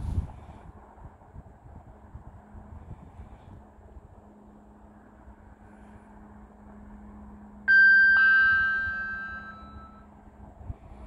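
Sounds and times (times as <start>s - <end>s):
two-note electronic chime: 7.7s - 10.1s.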